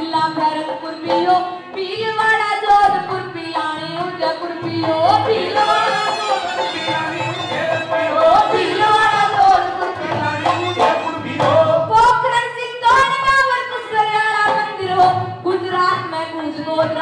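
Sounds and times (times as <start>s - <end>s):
drum strokes: 4.4s - 12.1s
folk melody with ornamented notes: 5.4s - 11.6s.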